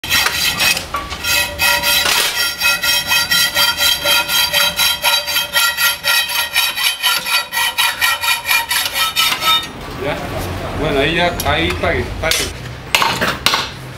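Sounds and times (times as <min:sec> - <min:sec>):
hand tool strokes on iron rod: 0:00.0 - 0:09.7
steel ringing high tones: 0:01.0 - 0:09.7.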